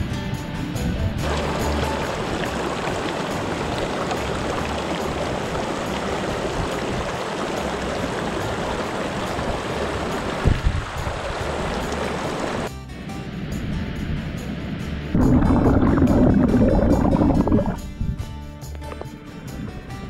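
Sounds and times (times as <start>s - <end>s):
stream running over rocks: 1.2s - 12.7s, 15.2s - 17.8s.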